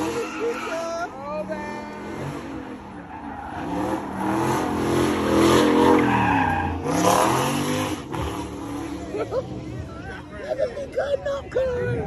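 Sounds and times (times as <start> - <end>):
tires screeching: 0.0 - 10.0
car engine revving hard: 3.6 - 9.1.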